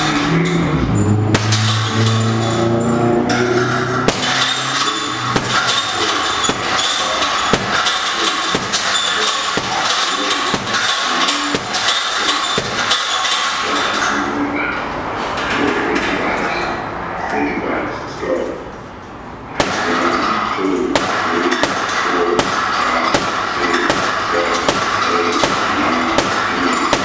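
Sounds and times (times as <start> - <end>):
steady background noise: 0.0 - 27.0
gloves punching heavy bag: 4.1 - 4.6, 5.2 - 13.0, 19.6 - 20.0, 21.0 - 27.0.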